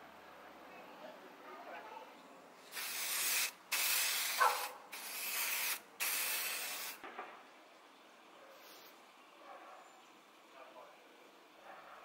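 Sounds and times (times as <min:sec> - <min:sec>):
spray can hissing: 0:02.6 - 0:07.0.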